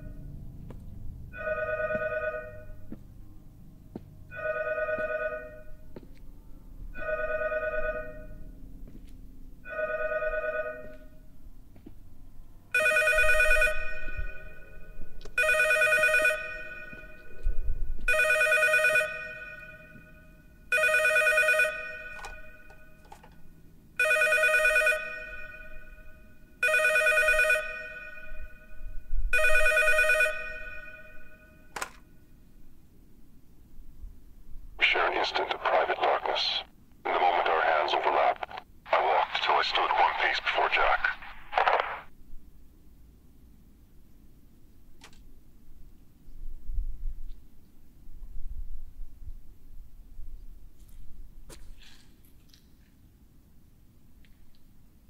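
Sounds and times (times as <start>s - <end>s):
telephone ringing: 1.4s - 2.8s, 4.3s - 5.7s, 7.0s - 8.4s, 9.7s - 11.0s, 12.7s - 14.8s, 15.4s - 17.3s, 18.1s - 23.1s, 24.0s - 28.7s, 29.4s - 31.6s.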